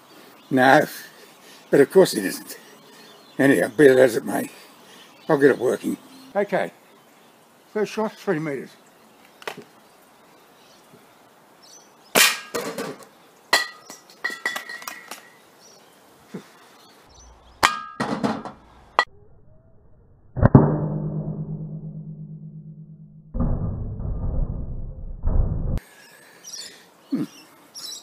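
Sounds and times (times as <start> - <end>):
pellet hitting steel cylinder: 12.2 - 12.8, 17.6 - 18.5.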